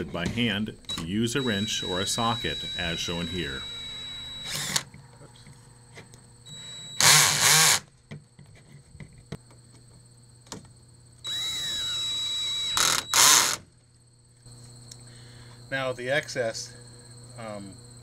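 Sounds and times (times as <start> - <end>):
cordless drill whirring: 0.8 - 4.9, 6.5 - 7.9, 11.3 - 13.6
loud drill burst: 0.8 - 4.9, 6.5 - 7.9, 11.3 - 13.6.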